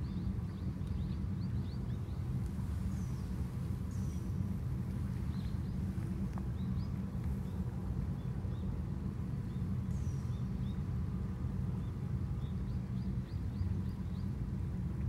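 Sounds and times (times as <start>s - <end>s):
small birds chirping: 0.0s - 8.8s, 9.4s - 10.9s
steady low rumble: 0.0s - 15.0s.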